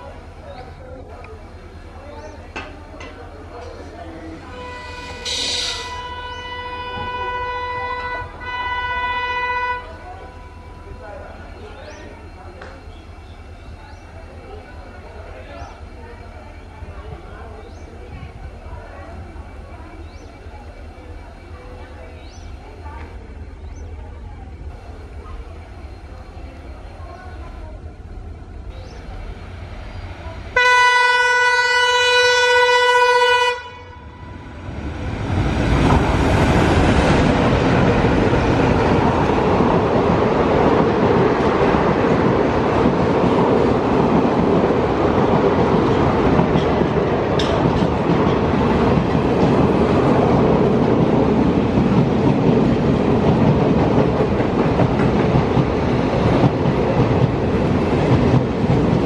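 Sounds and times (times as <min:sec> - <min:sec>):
train coaches clattering over rails: 0:00.2 - 0:09.2, 0:34.6 - 0:59.0
locomotive horn blast: 0:04.4 - 0:10.0, 0:30.5 - 0:34.6.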